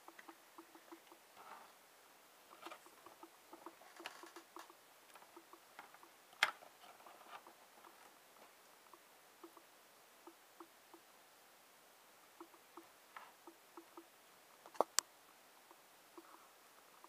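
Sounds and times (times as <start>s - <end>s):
test leads clicking and rustling: 0.0s - 1.7s, 2.5s - 8.1s.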